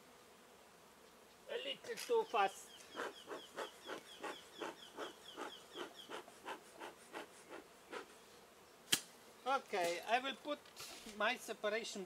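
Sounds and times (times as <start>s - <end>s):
bellows puffing air: 2.9s - 8.2s.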